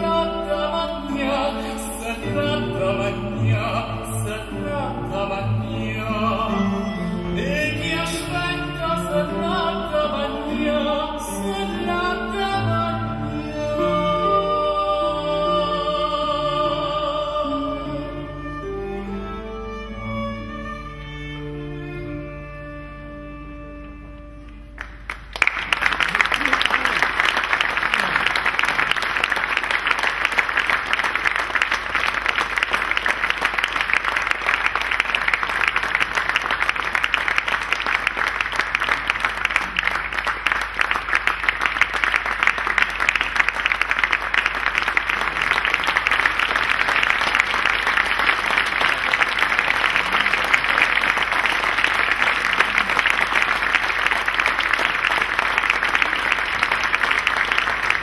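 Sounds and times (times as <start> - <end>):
audience applauding: 24.4 - 58.0.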